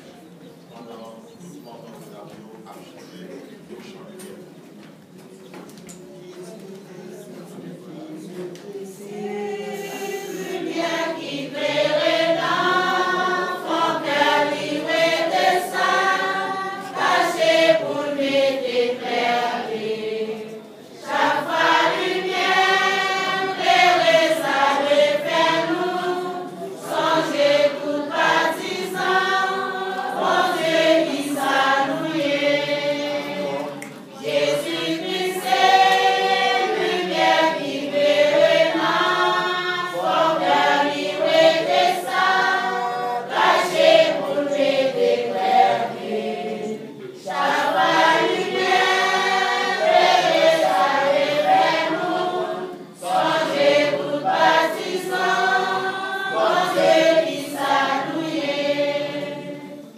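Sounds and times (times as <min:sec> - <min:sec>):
congregation singing a hymn: 0:05.9 - 0:59.9.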